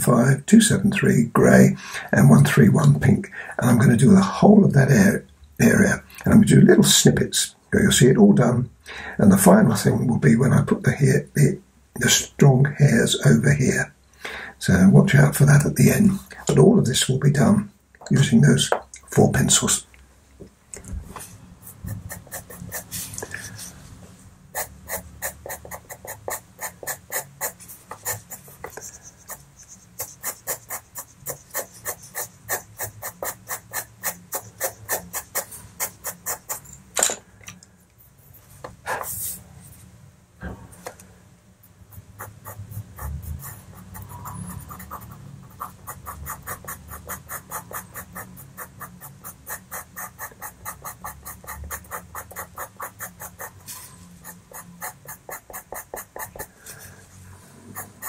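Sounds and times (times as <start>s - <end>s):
pencil scratching on paper: 21.2s - 23.8s, 24.5s - 36.7s, 41.9s - 56.8s, 57.7s - 58.0s.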